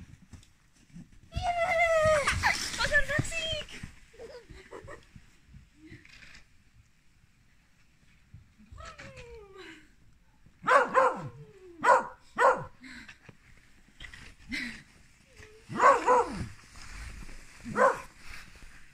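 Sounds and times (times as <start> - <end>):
dog barking: 10.6 - 12.8, 15.7 - 16.4, 17.7 - 18.1.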